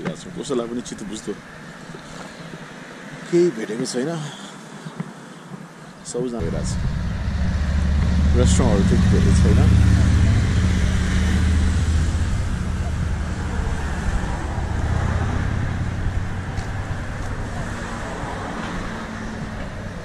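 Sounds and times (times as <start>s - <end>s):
passing vehicle engine hum: 6.4s - 20.0s.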